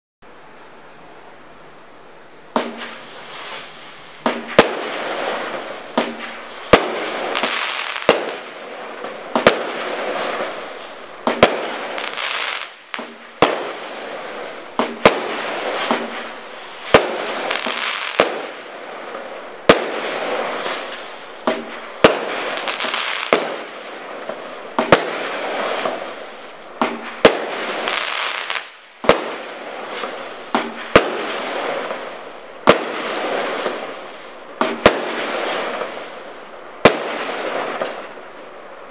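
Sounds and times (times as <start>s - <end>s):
firework launch thumps: 2.6s - 3.1s, 14.8s - 16.3s
firework crackling: 2.6s - 38.9s.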